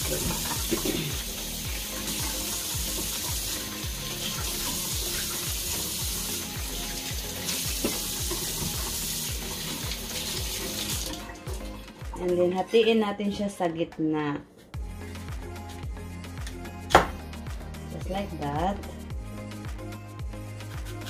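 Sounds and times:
kitchen tap running: 0:00.0 - 0:11.8
background music with steady beat: 0:00.0 - 0:21.0.

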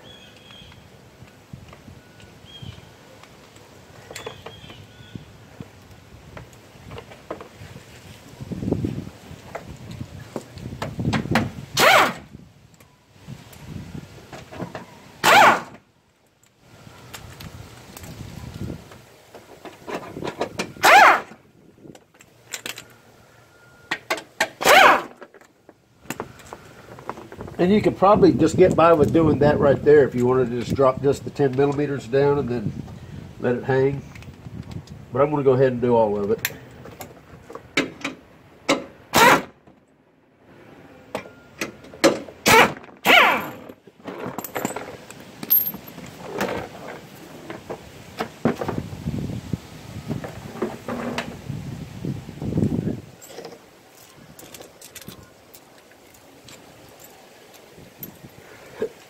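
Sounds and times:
metallic clinks: 0:43.3 - 0:46.0.

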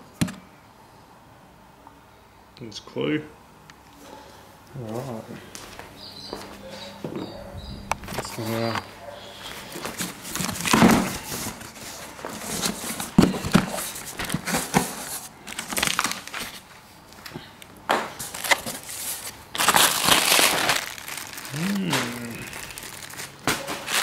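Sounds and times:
packing paper rustling: 0:07.6 - 0:17.3, 0:17.9 - 0:24.0
plastic wrap crinkling: 0:09.5 - 0:17.3, 0:18.0 - 0:24.0.

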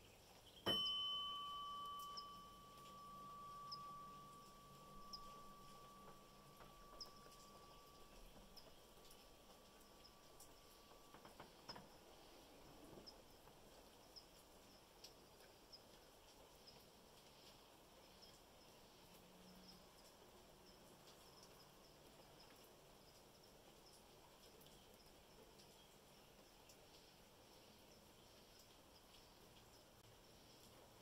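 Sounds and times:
small high chirps: 0:00.0 - 0:30.7
light rain hissing: 0:00.0 - 0:31.0.

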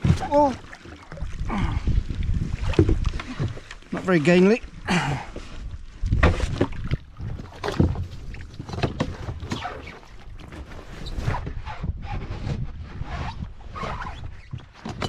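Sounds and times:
knocks and scrapes on kayak hull: 0:02.2 - 0:04.5, 0:05.3 - 0:15.0.

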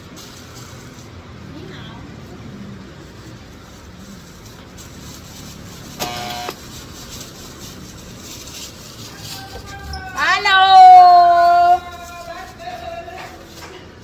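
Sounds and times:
street traffic noise: 0:00.0 - 0:14.0
vehicle horn beep: 0:06.0 - 0:06.6.

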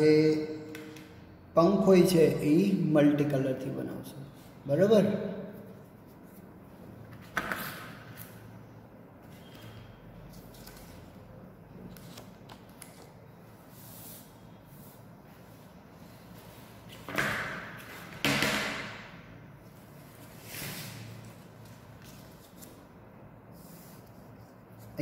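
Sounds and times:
paper rustling: 0:09.3 - 0:13.2.

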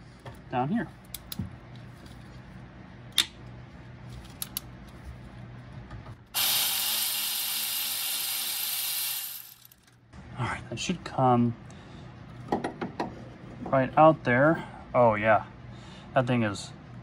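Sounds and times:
power ratchet hissing: 0:06.3 - 0:09.9.

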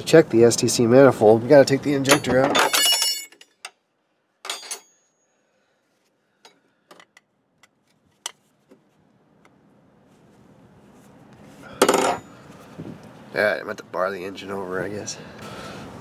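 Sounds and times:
metal tools clinking on engine parts: 0:02.0 - 0:03.8, 0:04.4 - 0:05.3, 0:11.8 - 0:12.4.

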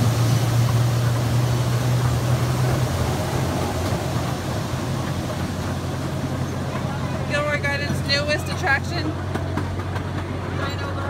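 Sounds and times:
waterfall rushing: 0:00.0 - 0:08.2
train low hum: 0:00.0 - 0:11.0.

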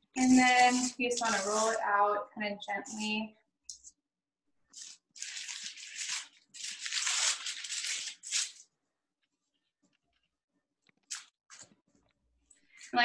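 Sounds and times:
plastic wrapping crinkling: 0:04.8 - 0:08.6.

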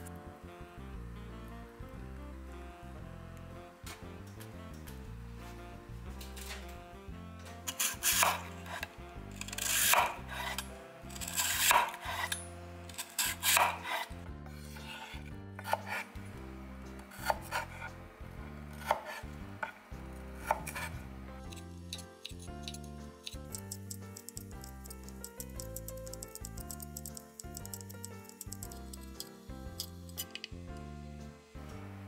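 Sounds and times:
soft background music: 0:00.0 - 0:32.0
knife slicing on cutting board: 0:07.6 - 0:10.6, 0:11.2 - 0:16.1, 0:17.2 - 0:17.9, 0:18.8 - 0:19.8, 0:20.4 - 0:21.0.

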